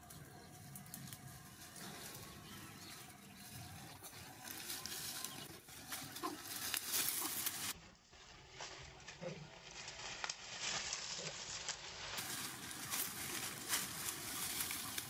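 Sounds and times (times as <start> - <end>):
leafy branches rustling: 0.0 - 15.0
small crackles and snaps: 9.7 - 12.2.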